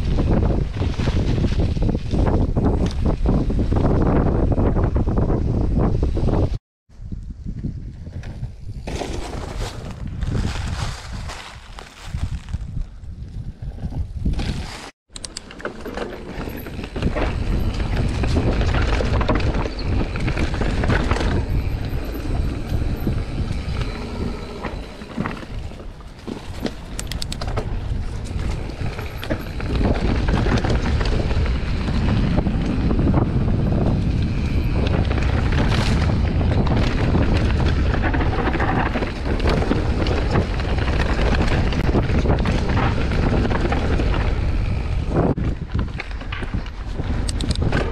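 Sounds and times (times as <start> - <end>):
bike tyres rumbling over dirt: 0.0 - 6.6, 7.4 - 47.9
wind buffeting microphone: 0.0 - 14.7, 16.2 - 47.9
bike frame and chain rattling: 15.2 - 47.9.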